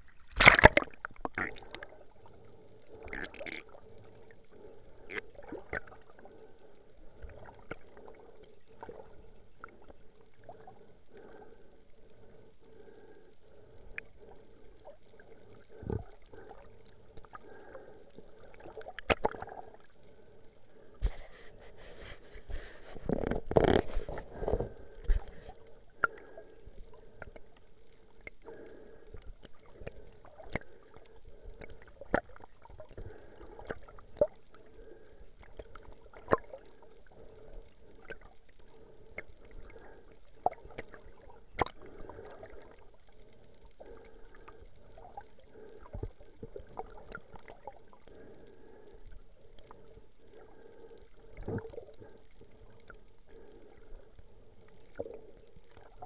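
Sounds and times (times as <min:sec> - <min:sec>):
faint steady hum: 0:00.0 - 0:56.0
underwater clicks and knocks: 0:00.3 - 0:01.9, 0:18.8 - 0:19.4, 0:22.5 - 0:25.5.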